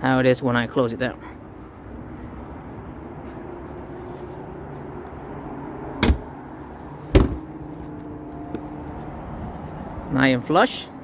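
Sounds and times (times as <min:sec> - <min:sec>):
car hood thudding shut: 0:06.0 - 0:06.3, 0:07.1 - 0:07.5.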